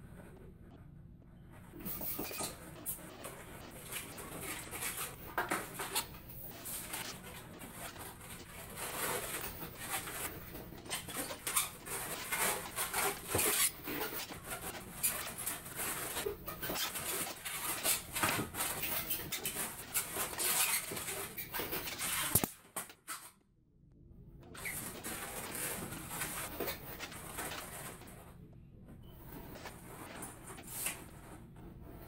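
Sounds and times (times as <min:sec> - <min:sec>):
balloons squeaking and creaking: 0:01.7 - 0:22.6, 0:24.5 - 0:28.3.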